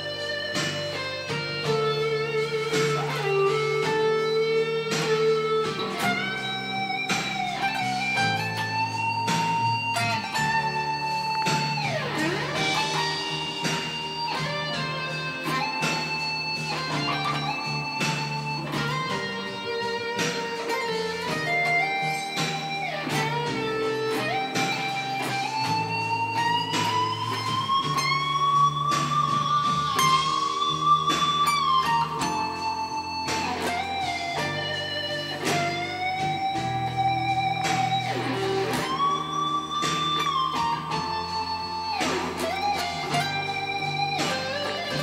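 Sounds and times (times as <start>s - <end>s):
electric guitar slow lead melody: 0.0s - 45.0s.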